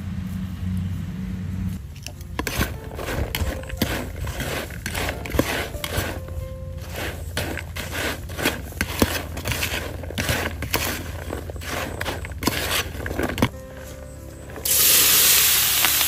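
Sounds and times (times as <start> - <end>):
spoon stirring in plastic bowl: 1.9 - 14.7.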